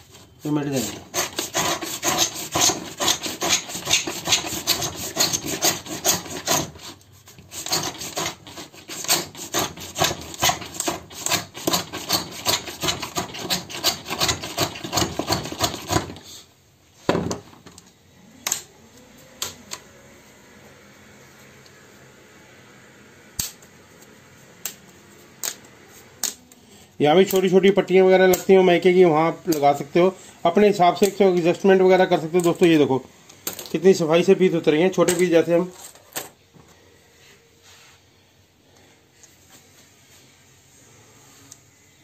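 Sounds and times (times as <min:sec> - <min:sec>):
pins scraping a thin sheet: 0:00.2 - 0:16.4.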